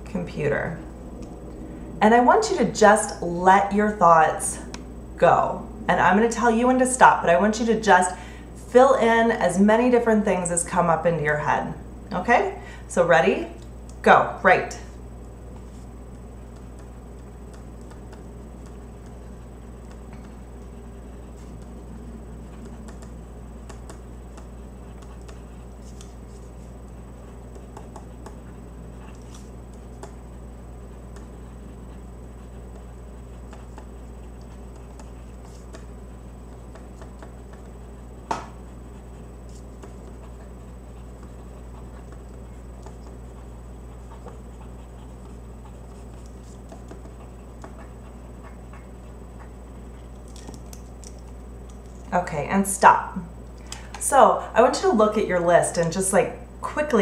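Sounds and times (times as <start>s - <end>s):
steady low hum: 0.0s - 57.0s
pen scratching on paper: 22.5s - 30.2s, 30.9s - 38.0s, 38.6s - 50.4s.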